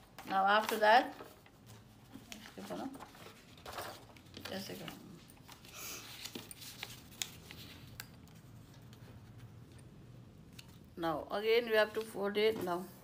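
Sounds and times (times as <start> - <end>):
paper rustling: 0.0 - 9.9.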